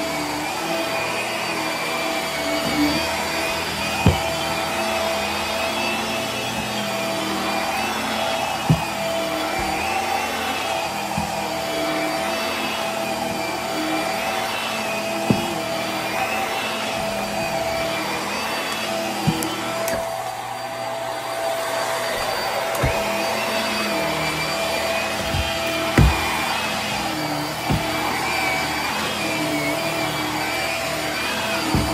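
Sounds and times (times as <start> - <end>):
dull thumps: 0.0 - 31.9
stick vacuum running on carpet: 0.0 - 31.9.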